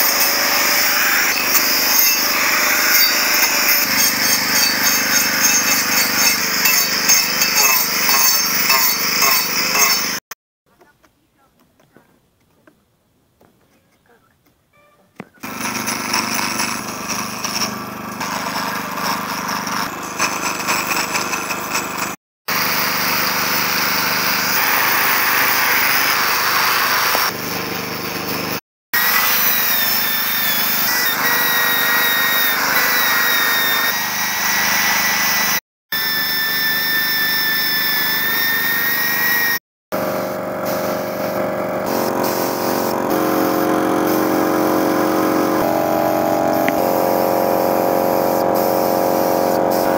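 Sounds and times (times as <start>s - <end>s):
rotary tool whining: 0.0s - 10.2s, 15.4s - 27.3s
air grinder running: 0.0s - 10.3s, 15.4s - 49.9s.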